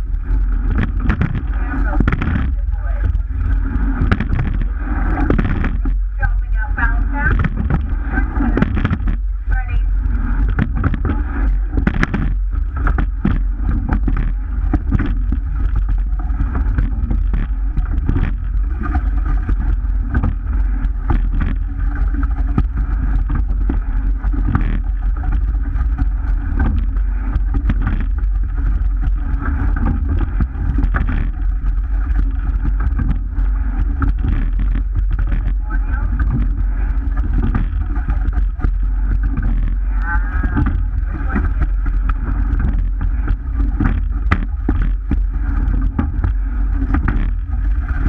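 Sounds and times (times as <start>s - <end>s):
water rushing along hull: 0.0s - 48.0s
wind on microphone: 0.0s - 48.0s
oars knocking: 0.6s - 9.8s, 29.4s - 48.0s.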